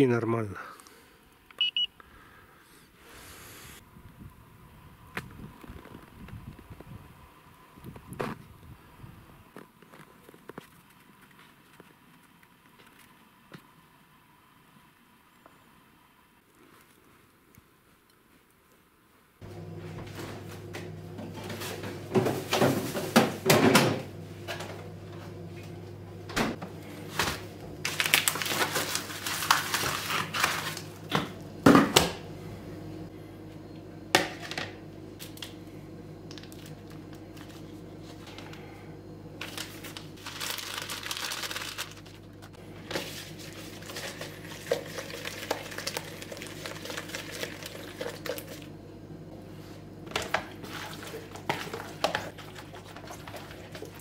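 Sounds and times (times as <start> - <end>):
steady low hum: 19.4 - 54.0
packaging crinkling: 27.2 - 31.0, 39.4 - 48.7.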